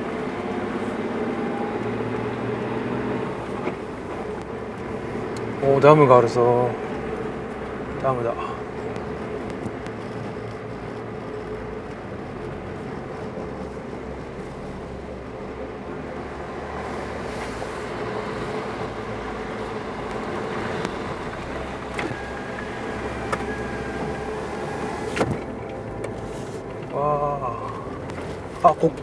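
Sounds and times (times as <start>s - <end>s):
car engine running at low speed: 0.0s - 29.0s
tyres rolling over gravel: 0.0s - 29.0s.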